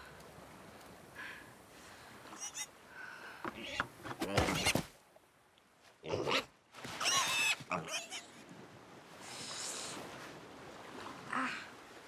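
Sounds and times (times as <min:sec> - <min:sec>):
cartoon piglet squealing: 0:07.0 - 0:08.3.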